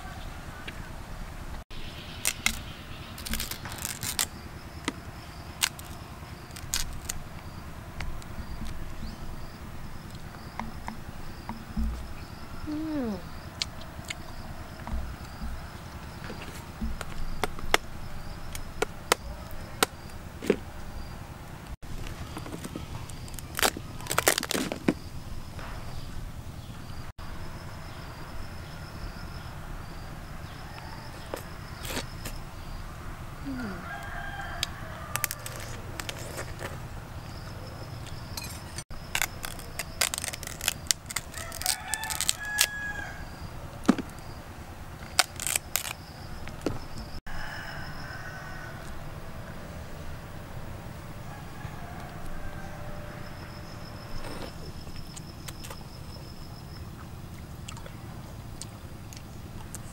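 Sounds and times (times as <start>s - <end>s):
crab shells cracking: 2.1s - 5.0s, 5.6s - 8.8s, 22.3s - 24.9s, 34.5s - 36.8s, 38.9s - 42.8s, 45.0s - 46.6s
high insect drone: 26.9s - 56.9s
rooster crowing: 30.4s - 31.8s, 33.4s - 36.0s, 41.3s - 43.6s, 47.2s - 54.2s.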